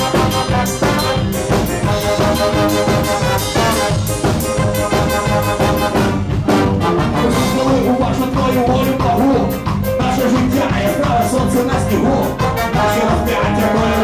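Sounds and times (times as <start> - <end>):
brass carrying tune: 0.0 - 8.7, 12.2 - 14.0
drums bass and keyboard: 0.0 - 14.0.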